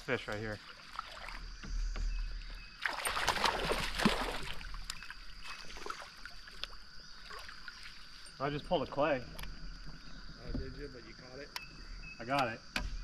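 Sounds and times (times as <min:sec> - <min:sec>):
water splashing: 0:00.0 - 0:09.0.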